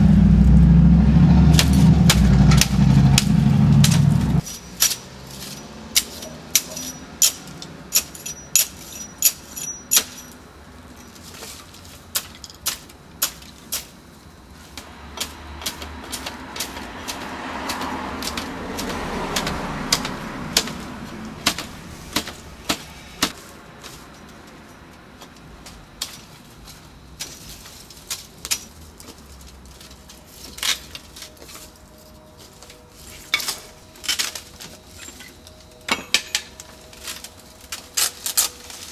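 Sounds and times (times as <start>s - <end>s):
broad rushing noise: 0.0s - 8.2s, 14.0s - 24.1s
broken glass shards clinking: 4.4s - 12.9s, 33.2s - 38.6s.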